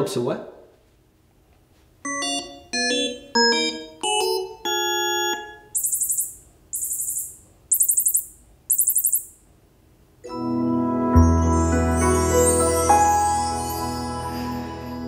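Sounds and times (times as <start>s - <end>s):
high stuttering chirps: 5.8s - 9.4s.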